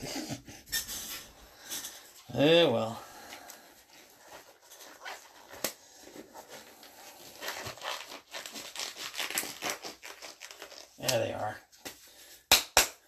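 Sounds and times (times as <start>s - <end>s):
cardboard packaging rustling: 3.3s - 11.5s.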